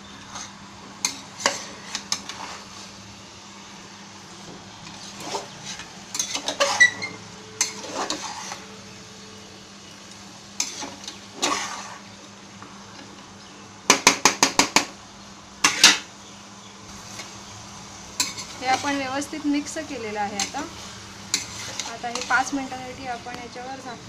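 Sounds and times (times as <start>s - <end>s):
ladle scraping metal pot: 4.8s - 8.8s, 10.6s - 12.1s, 21.3s - 22.5s.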